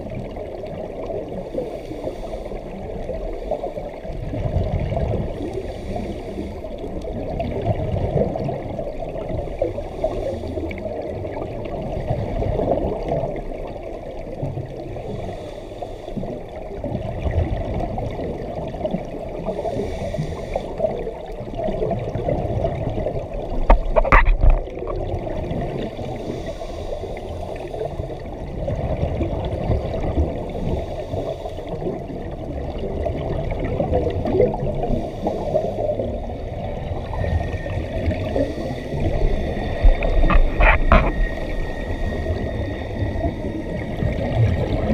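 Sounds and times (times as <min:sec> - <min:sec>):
underwater exhaust bubbles: 0:00.0 - 0:44.9.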